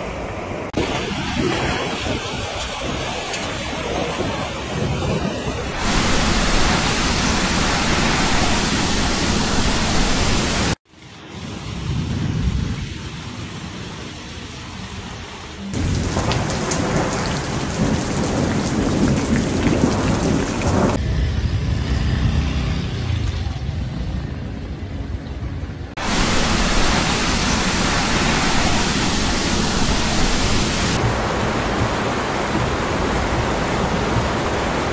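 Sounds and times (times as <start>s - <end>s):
storm wind: 0.0s - 25.1s, 25.7s - 34.9s
heavy rain: 0.3s - 21.0s, 26.0s - 34.9s
rain patter: 5.7s - 10.8s, 11.4s - 21.0s, 26.0s - 34.9s.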